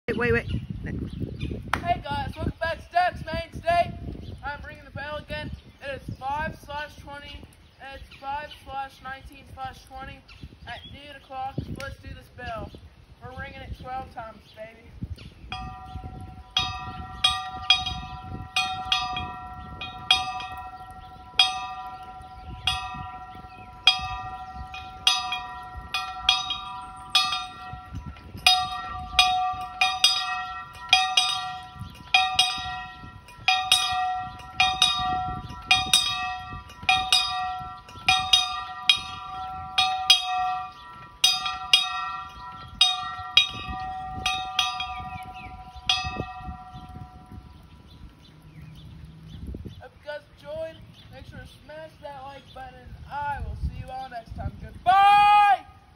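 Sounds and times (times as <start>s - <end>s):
farm bell ringing: 15.5s - 48.7s.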